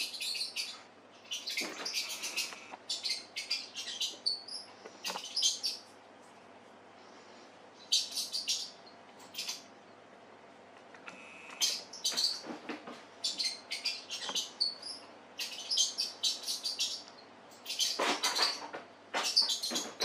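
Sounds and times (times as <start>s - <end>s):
high chirpy mouse squeaks: 13.2s - 18.6s.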